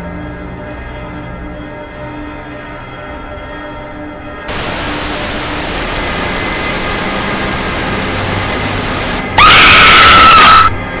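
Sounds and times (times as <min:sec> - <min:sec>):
static hiss: 0:04.5 - 0:10.7
loud shrill scream: 0:08.0 - 0:10.8.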